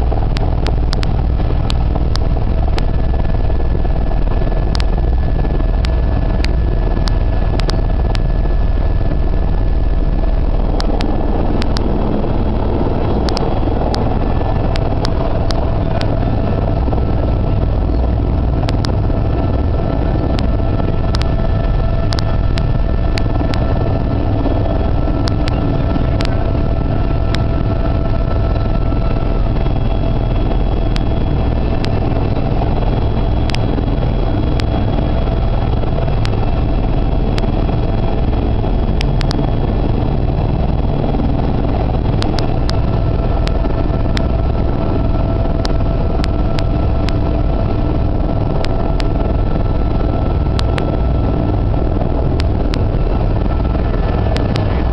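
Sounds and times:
aircraft engine and cabin noise: 0.0s - 54.9s.

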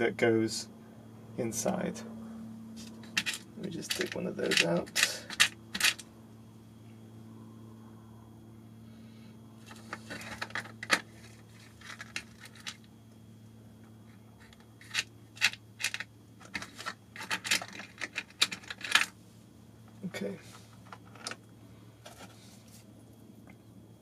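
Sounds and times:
low hum: 0.0s - 24.0s
small parts clicking and rattling: 2.8s - 6.1s, 9.6s - 12.9s, 13.8s - 19.2s, 19.8s - 22.4s.

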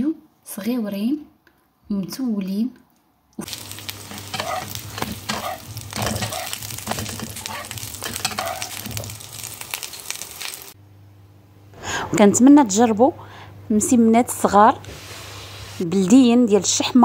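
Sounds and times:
flatbreads sizzling in hot oil: 3.4s - 10.8s.

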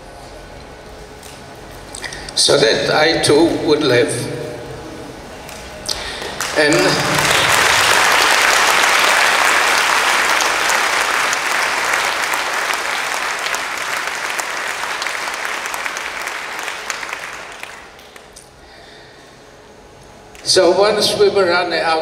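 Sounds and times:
audience applauding: 5.5s - 18.4s.

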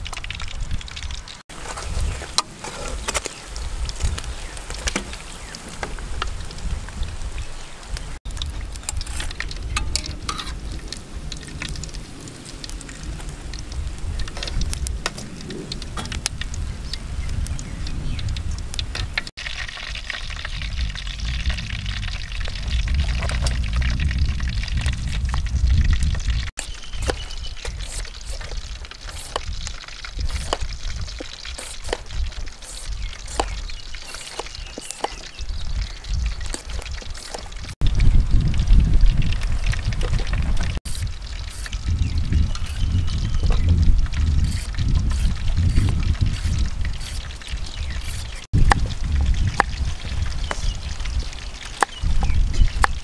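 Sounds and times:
oil sizzling and popping: 0.0s - 53.0s
wind rumble on microphone: 0.0s - 53.0s
metal utensils clinking on pan: 8.9s - 10.6s.

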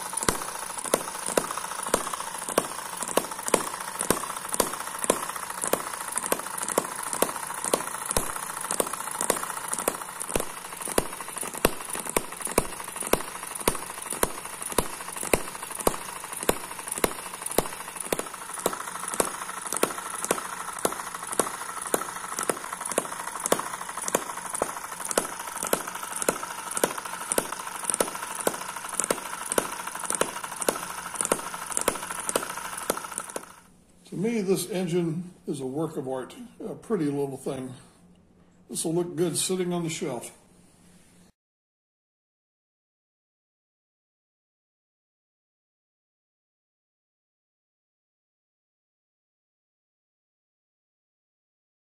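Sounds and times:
small engine sharp clicking: 0.0s - 33.8s
light mechanical whir: 0.0s - 41.3s.

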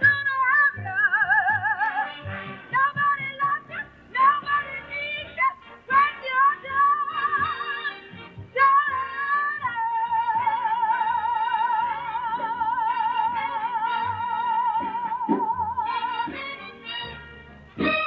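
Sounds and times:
woman singing blues: 0.0s - 16.6s
soft band accompaniment: 0.0s - 18.0s.

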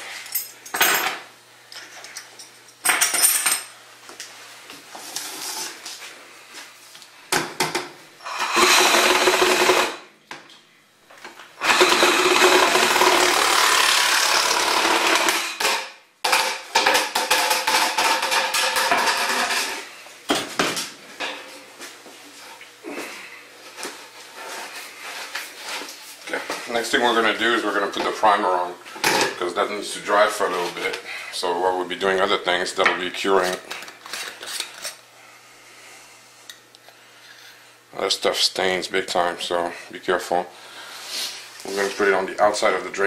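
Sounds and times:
saw cutting plastic pipe: 8.2s - 10.0s, 11.6s - 15.6s.

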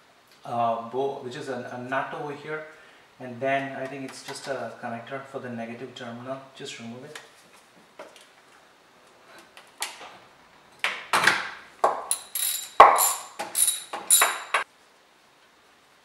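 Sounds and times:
ratchet wrench clicking: 12.1s - 14.6s.

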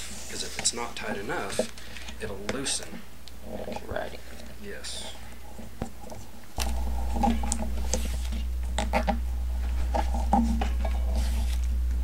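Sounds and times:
steady low hum: 0.0s - 12.0s
handlebar tape clicking and crackling: 5.3s - 9.3s.

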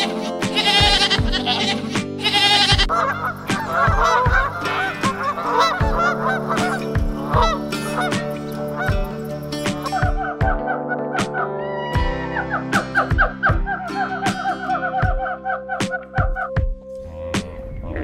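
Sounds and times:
goat bleat: 0.0s - 2.9s
goose honking: 0.0s - 10.3s
background music with beat: 0.0s - 17.6s.

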